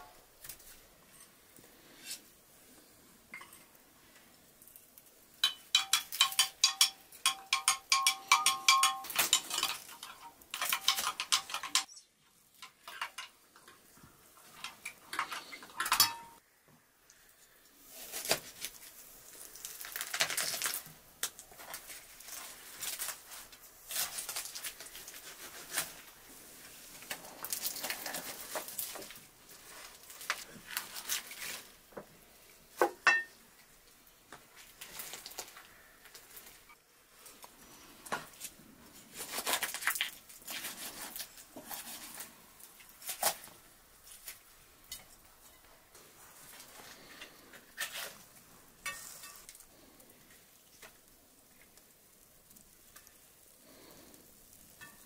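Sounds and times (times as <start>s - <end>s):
metal spoon clinking in jug: 5.4s - 12.0s, 15.8s - 16.4s
tearing and rustling of turkey: 17.8s - 31.8s, 38.3s - 44.5s.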